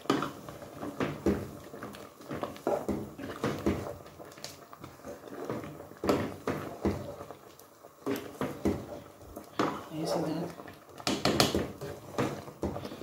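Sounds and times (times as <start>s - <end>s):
spoon stirring soup in metal pot: 0.0s - 13.0s.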